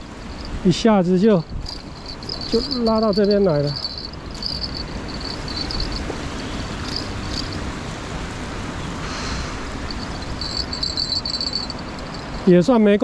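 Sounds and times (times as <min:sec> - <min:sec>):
crickets chirping: 0:00.0 - 0:07.9, 0:09.1 - 0:12.5
steady rushing outdoor noise: 0:00.0 - 0:13.0.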